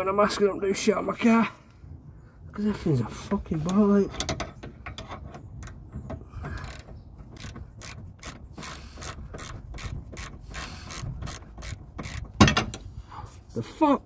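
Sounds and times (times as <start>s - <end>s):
hand ratchet clicking: 6.4s - 12.7s.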